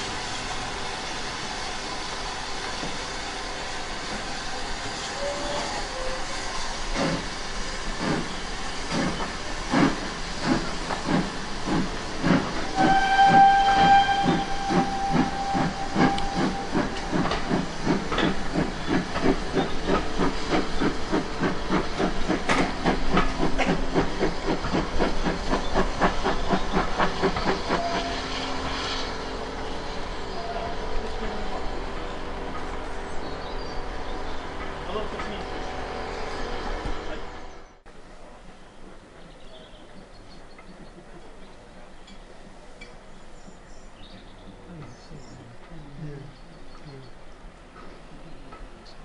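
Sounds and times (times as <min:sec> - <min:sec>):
steam locomotive exhaust chuffing: 0:00.0 - 0:37.5
steam whistle blast: 0:12.7 - 0:17.1, 0:27.7 - 0:28.6.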